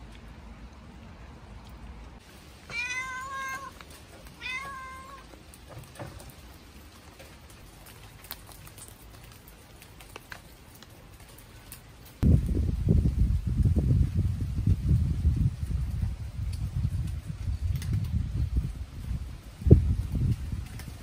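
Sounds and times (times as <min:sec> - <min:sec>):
cat meowing: 0:02.7 - 0:05.4.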